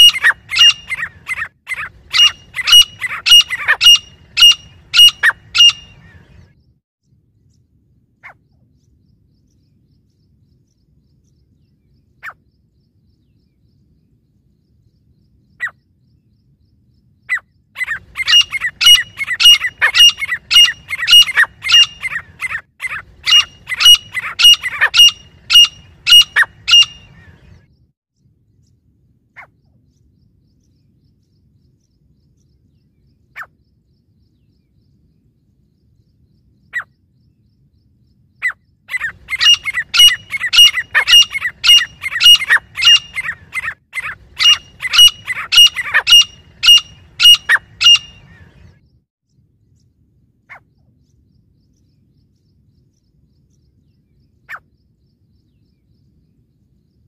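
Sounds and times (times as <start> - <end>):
francolin calling: 0.0 - 6.4, 17.2 - 27.5, 38.3 - 48.6.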